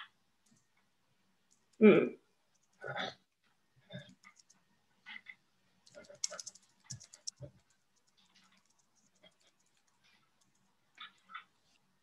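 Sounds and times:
computer keyboard typing: 4.1 - 4.6, 5.8 - 11.2.

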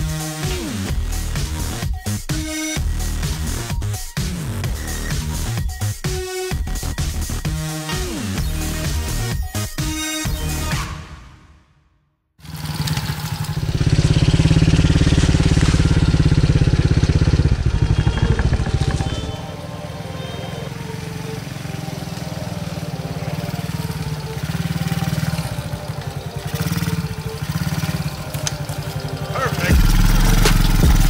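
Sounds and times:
dirt bike engine revving: 12.4 - 31.0.

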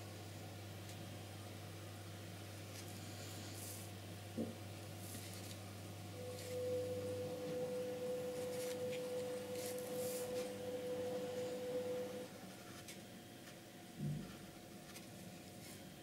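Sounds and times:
steady pure tone: 6.0 - 12.4
paintbrush strokes on wood: 8.3 - 10.6.

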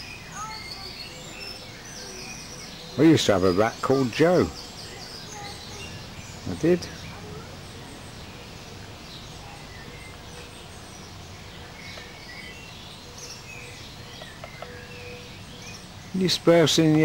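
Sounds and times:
low outdoor hum: 0.0 - 17.0
small birds chirping: 0.0 - 17.0.

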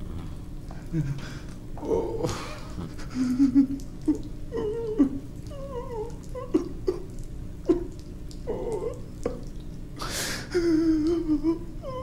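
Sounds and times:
man moaning in pain: 1.8 - 2.5.

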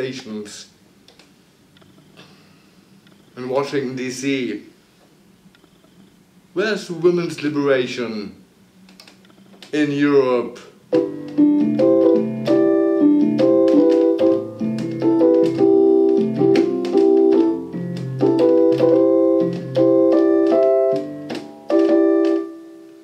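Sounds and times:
electronic keyboard chords: 10.9 - 23.0.

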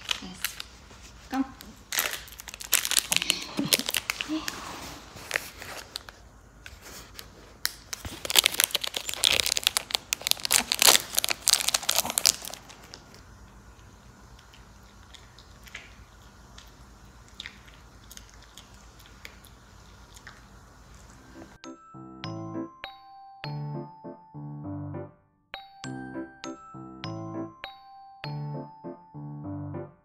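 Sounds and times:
plastic wrapper crinkling: 0.0 - 13.2.

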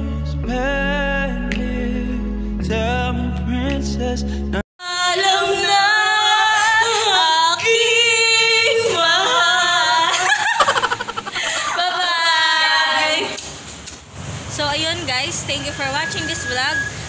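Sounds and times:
woman singing in a high voice: 4.8 - 10.4, 11.7 - 13.4.

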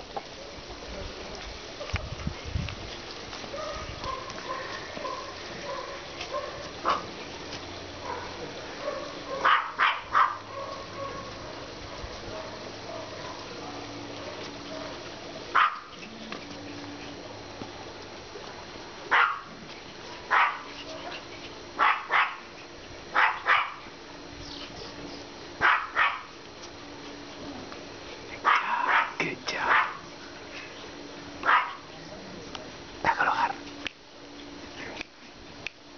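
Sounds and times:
small dogs yapping: 3.4 - 7.3, 8.0 - 17.4, 19.1 - 24.0, 24.6 - 26.4, 28.4 - 32.0.

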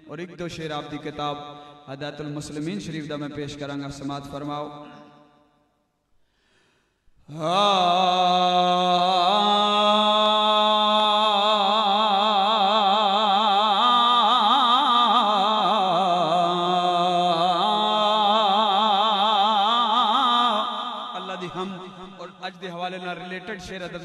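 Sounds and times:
man chanting with wide vibrato: 7.2 - 24.0.

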